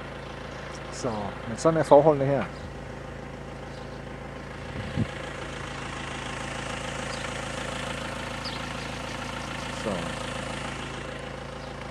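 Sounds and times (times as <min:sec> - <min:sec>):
vehicle engine idling: 0:00.0 - 0:11.9.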